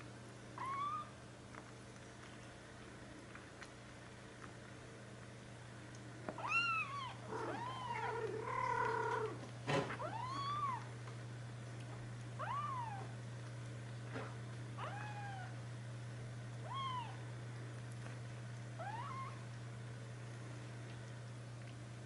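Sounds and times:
kittens mewing: 6.4s - 10.9s, 14.8s - 15.6s, 16.6s - 17.2s.

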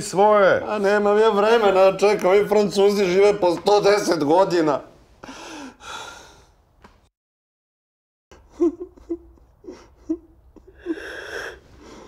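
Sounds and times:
sharp inhale: 5.2s - 6.6s
man sobbing: 8.4s - 12.0s.

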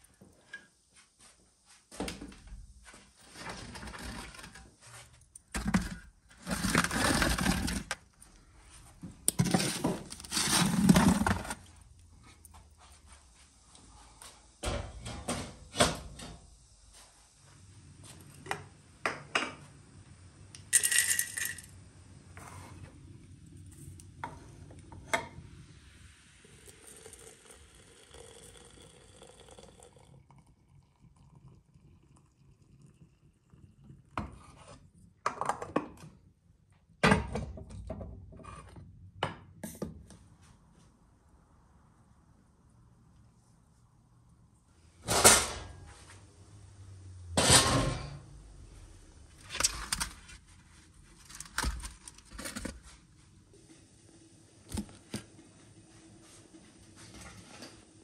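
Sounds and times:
metal tray scraping on brick: 9.4s - 11.6s.

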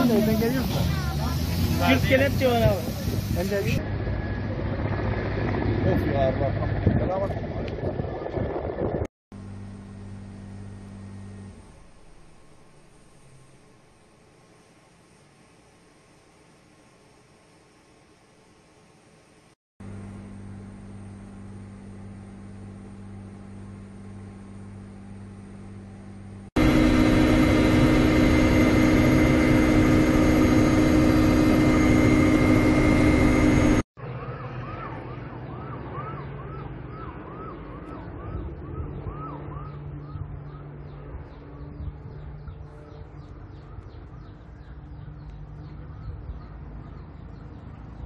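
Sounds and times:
aircraft engine noise: 0.0s - 15.6s, 18.9s - 48.0s
steady background hum: 9.4s - 48.0s.

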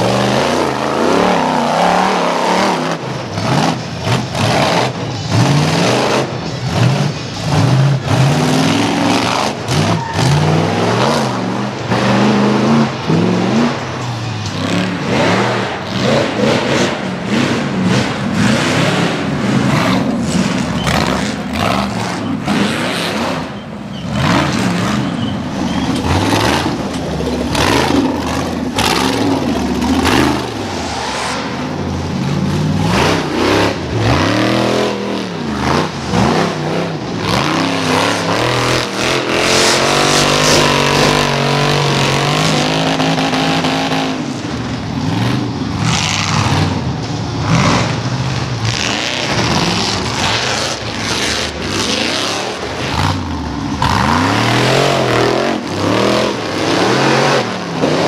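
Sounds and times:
buggy engine revving hard: 0.0s - 58.0s.

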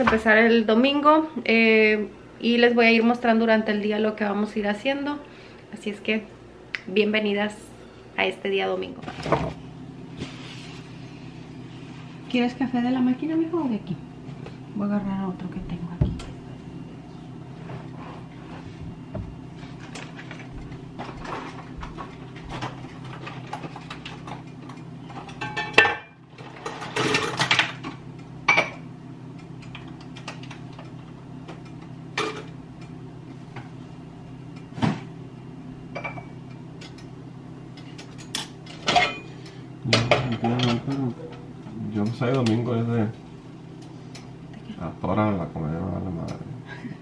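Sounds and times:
steady low hum: 0.0s - 47.0s
dishes and utensils clinking: 19.8s - 27.8s, 37.8s - 41.0s.

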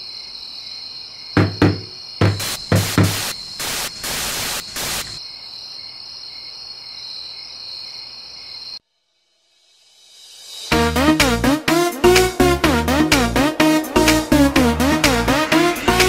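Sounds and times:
dull knocks on wood: 1.4s - 3.2s
television static hiss: 2.4s - 5.2s.

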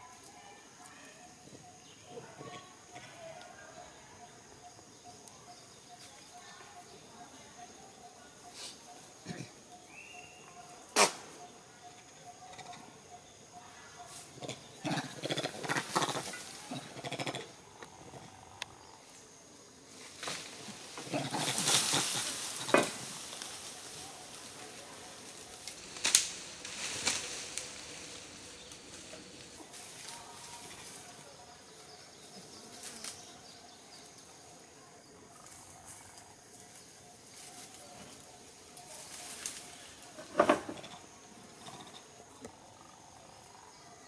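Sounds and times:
dry leaves rustling: 19.9s - 31.4s, 35.5s - 40.3s
twigs snapping: 25.6s - 27.8s.

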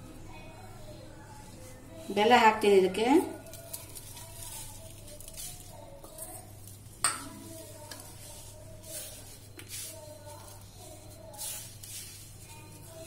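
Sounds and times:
hand rubbing dough swishes: 3.2s - 13.0s.

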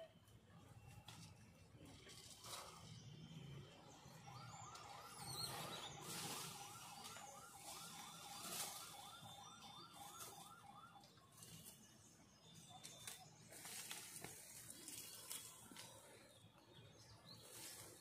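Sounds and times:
faint electronic siren warbling: 2.4s - 13.5s.

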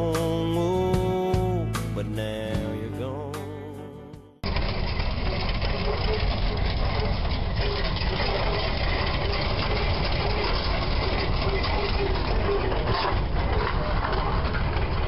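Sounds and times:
tractor engines running: 4.4s - 15.0s.

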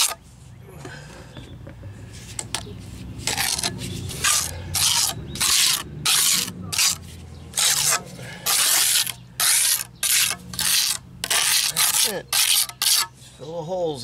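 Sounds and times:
trowel scraping cement: 0.0s - 0.2s, 2.3s - 13.2s.

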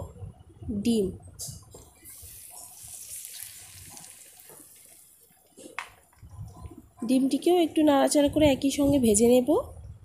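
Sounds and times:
egg sizzling in hot oil: 1.8s - 5.5s.

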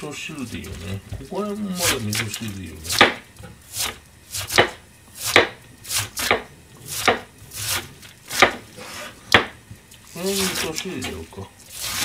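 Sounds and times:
knife slicing cabbage on board: 1.8s - 9.6s, 10.3s - 11.1s, 11.7s - 12.0s.

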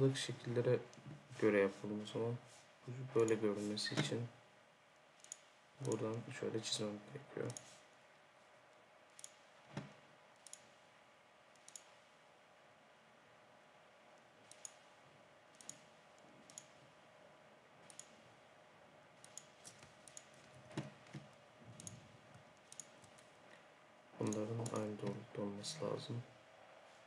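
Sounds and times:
faint room hum: 0.0s - 27.0s
computer mouse clicking: 5.2s - 6.2s, 9.1s - 10.8s, 11.5s - 12.0s, 14.4s - 14.9s, 15.5s - 16.8s, 17.8s - 18.2s, 19.2s - 23.4s, 24.2s - 25.2s.

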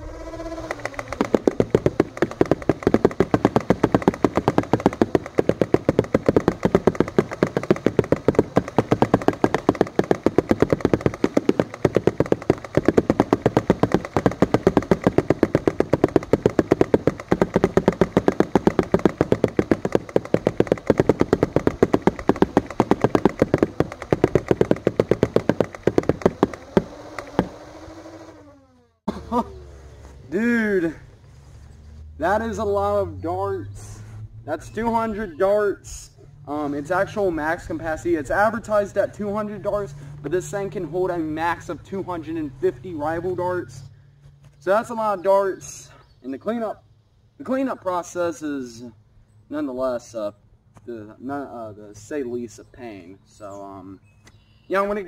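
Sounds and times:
toy blaster rapid firing: 0.0s - 28.4s
flywheels whirring: 0.0s - 28.9s.

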